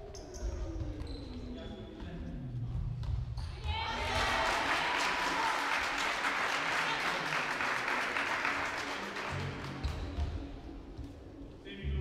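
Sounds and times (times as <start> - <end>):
spectators applauding: 4.0 - 10.1.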